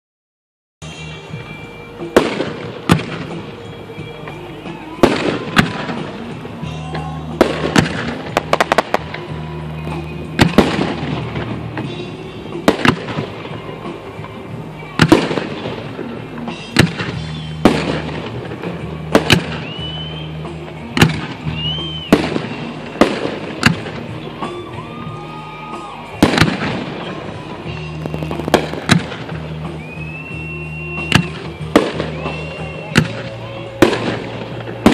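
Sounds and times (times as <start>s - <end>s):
crackling firework reports: 1.0s - 34.9s
firework shells bursting: 7.4s - 9.3s, 15.0s - 24.2s, 26.1s - 34.9s.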